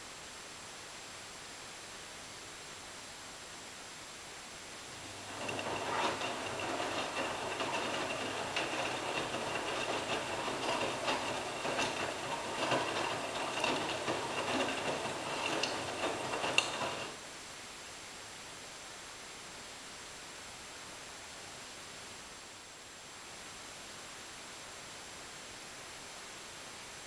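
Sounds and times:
laundry tumbling: 4.9s - 17.2s
washing machine drum whine: 4.9s - 17.2s
small clicks and knocks: 5.1s - 17.2s.

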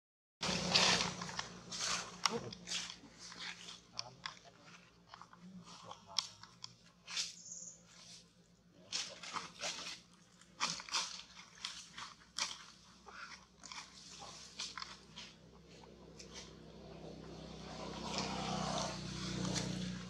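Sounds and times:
short high squeak: 7.2s - 7.9s.

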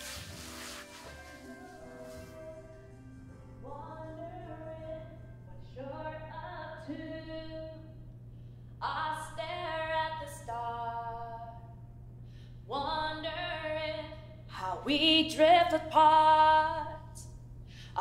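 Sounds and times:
steady low hum: 1.2s - 18.0s
woman singing long held notes: 1.4s - 8.0s.

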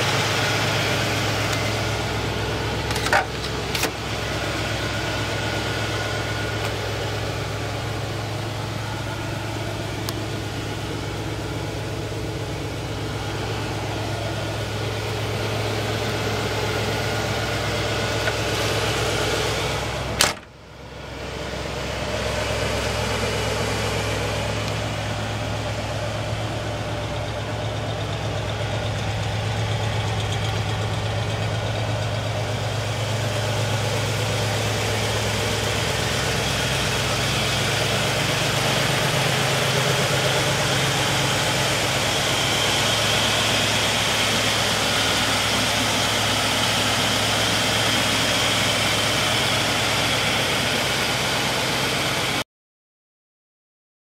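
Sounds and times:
car engine idling: 0.0s - 52.4s.

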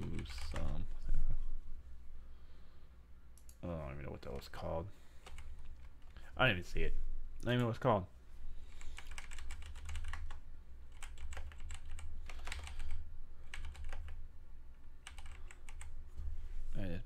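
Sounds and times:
steady low hum: 0.0s - 17.0s
typing on computer keyboard: 8.8s - 14.2s, 15.0s - 15.9s.

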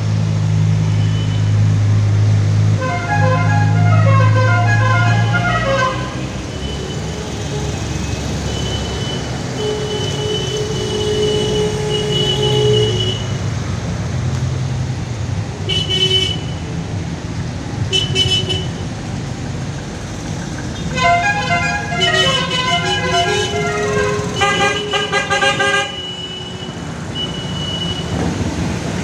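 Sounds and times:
tyres on wet road: 0.0s - 29.0s
car horn: 2.8s - 13.4s, 15.6s - 16.6s, 17.9s - 18.8s, 20.8s - 28.3s.

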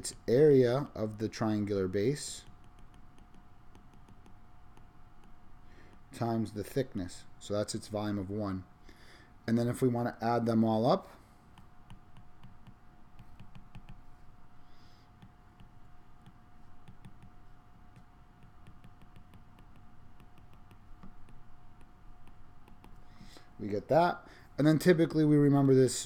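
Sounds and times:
faint steady hum: 0.0s - 26.0s
stylus tapping on glass screen: 2.4s - 6.1s, 11.5s - 14.1s, 15.2s - 23.3s.

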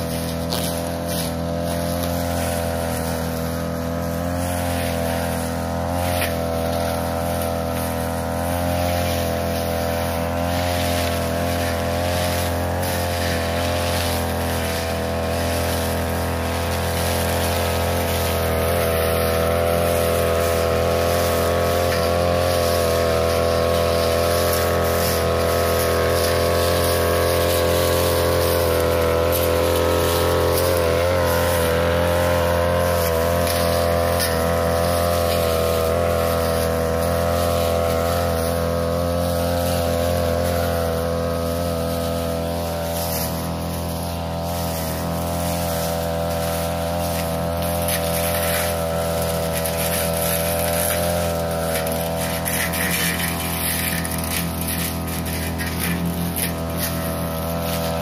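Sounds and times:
blade cutting through grass: 0.0s - 58.0s
brush cutter engine running: 0.0s - 58.0s.

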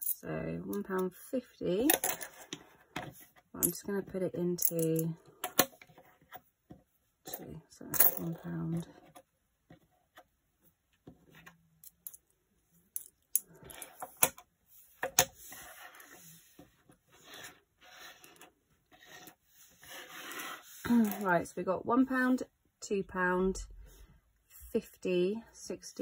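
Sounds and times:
coins scraping on table: 13.4s - 14.3s, 15.1s - 16.5s, 17.1s - 21.3s.

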